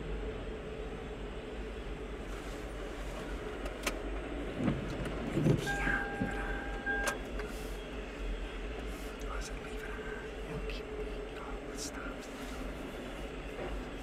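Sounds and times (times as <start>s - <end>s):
train wheels rumbling on rails: 0.0s - 14.0s
steady high tone: 5.6s - 7.2s.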